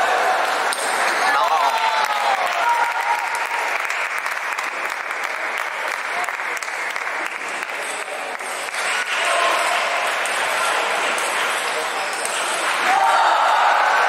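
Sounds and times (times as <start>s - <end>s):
cheering shouts: 0.0s - 4.6s, 8.8s - 11.0s, 12.5s - 14.0s
spectators clapping: 0.0s - 14.0s.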